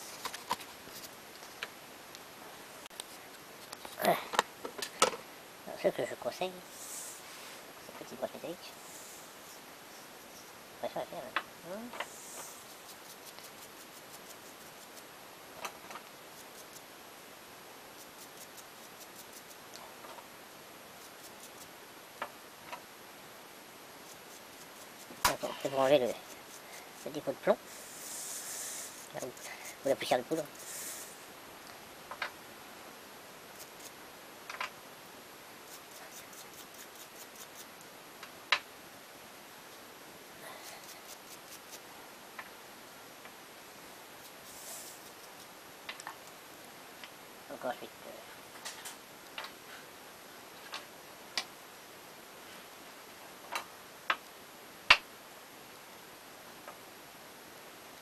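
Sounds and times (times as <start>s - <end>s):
wire brush scratching metal parts: 24.0s - 31.2s, 35.7s - 37.7s.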